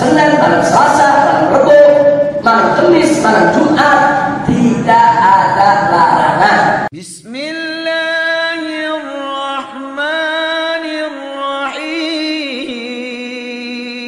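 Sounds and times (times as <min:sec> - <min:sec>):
person lecturing: 0:00.0 - 0:09.7
person singing unaccompanied: 0:06.9 - 0:14.0.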